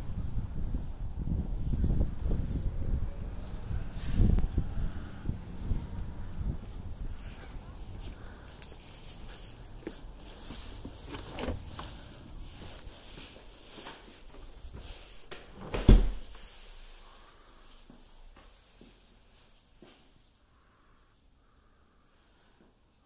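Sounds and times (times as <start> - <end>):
front door thump closing: 15.5 - 16.3.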